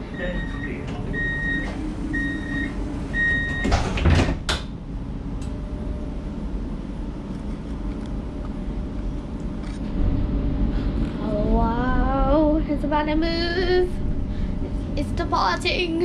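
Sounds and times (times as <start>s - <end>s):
door warning beeps: 0.0s - 4.3s
tram low hum: 0.0s - 16.0s
doors sliding shut with thud: 3.3s - 4.7s.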